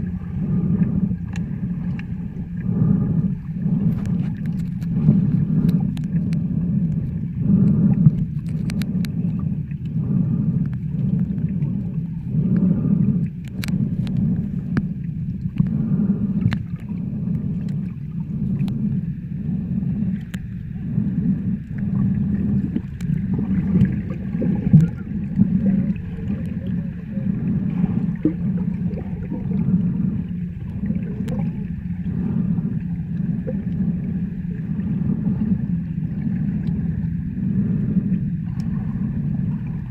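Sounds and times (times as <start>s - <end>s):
muffled underwater rumble: 0.0s - 39.9s
faint clicks: 0.7s - 2.7s, 3.9s - 10.0s, 10.6s - 15.8s, 16.4s - 19.0s, 20.1s - 20.5s, 22.6s - 26.9s, 28.0s - 31.8s.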